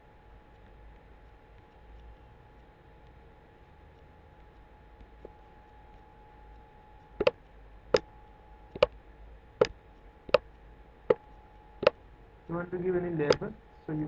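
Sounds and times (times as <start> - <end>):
faint steady hum: 0.0 - 14.0
computer mouse clicking: 8.7 - 9.0.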